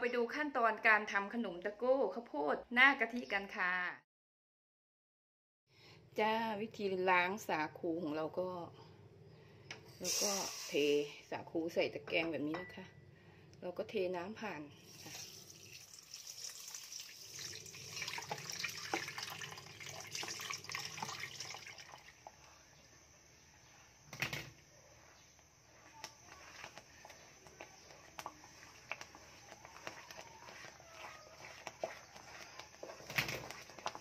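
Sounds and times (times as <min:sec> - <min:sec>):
water splashing into bowl: 0:14.9 - 0:22.2
spatula stirring in wok: 0:22.1 - 0:34.0.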